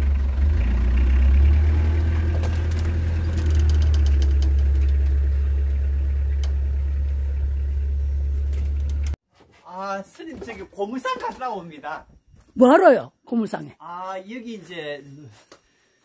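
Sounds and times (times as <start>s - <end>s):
pickup truck engine rumble: 0.0s - 9.2s.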